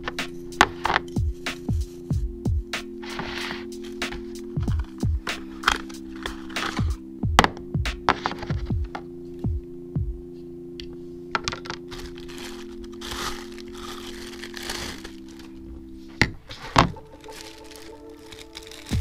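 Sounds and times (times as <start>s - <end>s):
soft background music: 0.0s - 19.0s
plastic packaging crinkling: 11.5s - 15.8s, 16.5s - 19.0s.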